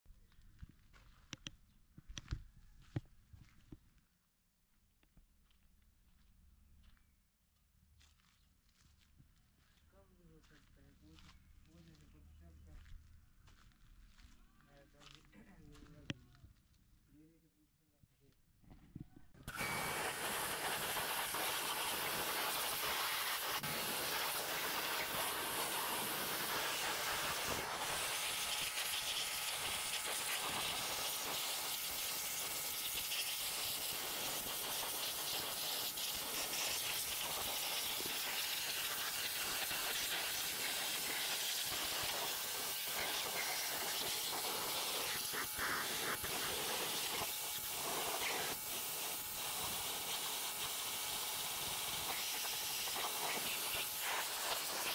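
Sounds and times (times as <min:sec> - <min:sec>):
pressure washer spraying water: 0:19.5 - 0:54.9.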